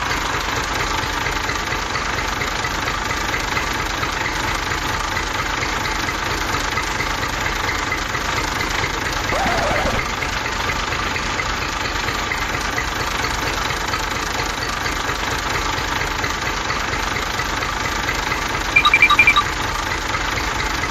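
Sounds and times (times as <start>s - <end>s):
toy tractor mechanical drone: 9.3s - 10.2s
short high beeps: 18.8s - 19.7s.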